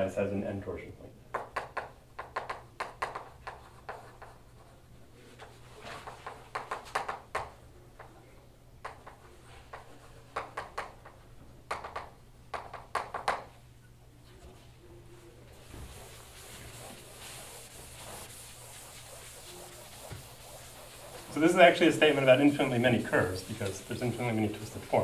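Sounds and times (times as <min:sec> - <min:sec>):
chalk tapping and scratching: 0:01.3 - 0:04.8, 0:05.4 - 0:08.1, 0:08.8 - 0:13.5, 0:15.5 - 0:25.0
steady low hum: 0:13.6 - 0:25.0.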